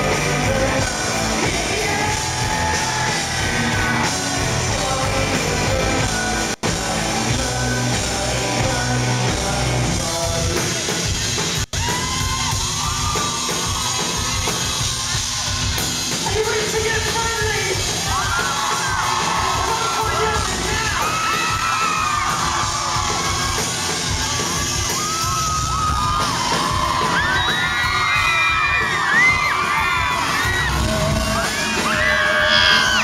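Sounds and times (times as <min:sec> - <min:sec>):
crowd yelling and whooping: 0:00.0 - 0:09.4, 0:10.8 - 0:33.0
man singing lead vocal: 0:00.0 - 0:11.2, 0:30.1 - 0:33.0
live rock band: 0:00.0 - 0:33.0.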